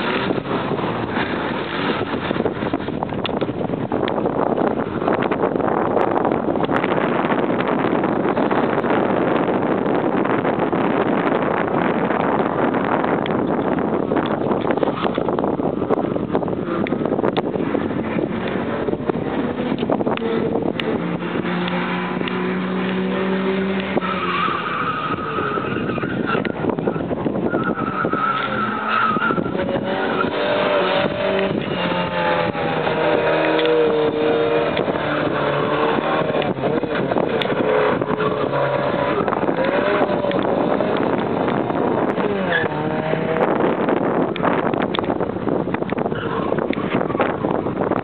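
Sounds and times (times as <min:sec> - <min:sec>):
rally car engine revving: 0:00.0 - 0:48.0
tyres squealing and skidding: 0:17.6 - 0:44.3, 0:46.0 - 0:47.9.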